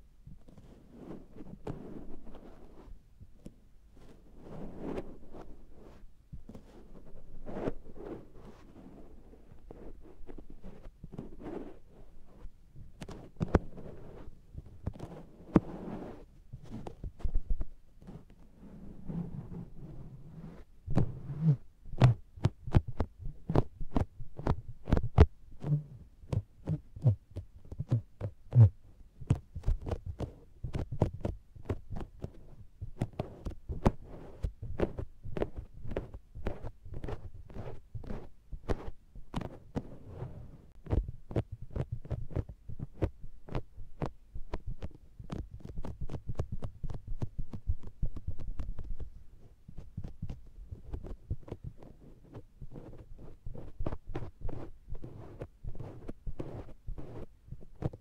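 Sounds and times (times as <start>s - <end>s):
sponge patting on microphone: 20.9s - 39.9s, 40.7s - 49.1s.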